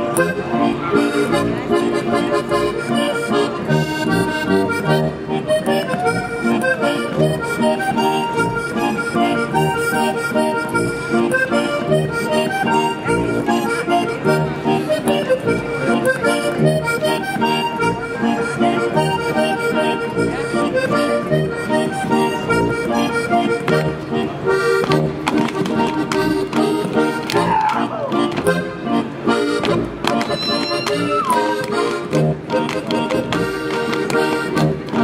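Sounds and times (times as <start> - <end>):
folk dance music with accordion: 0.0 - 35.0.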